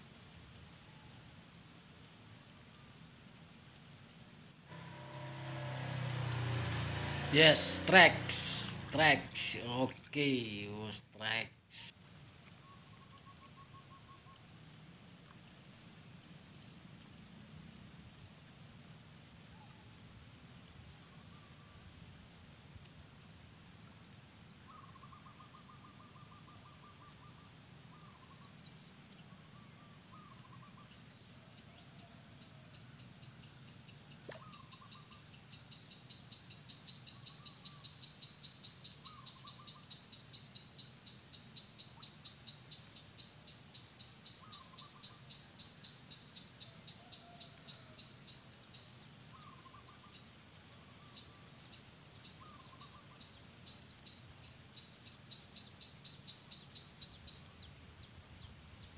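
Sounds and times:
high insect buzz: 0:04.7 - 0:09.6
bird calls: 0:33.4 - 0:40.5, 0:43.9 - 0:53.9.

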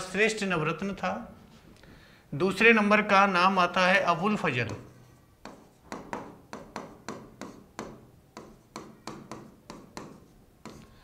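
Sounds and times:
stylus tapping on glass screen: 0:04.7 - 0:10.9.

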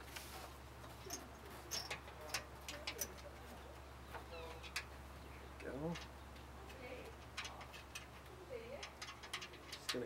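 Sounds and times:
radiator clicking and knocking: 0:05.6 - 0:10.0.

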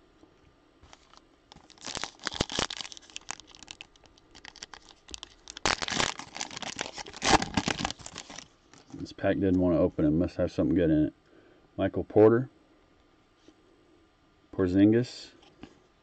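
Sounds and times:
plastic wrapper crinkling and tearing: 0:00.9 - 0:09.0.

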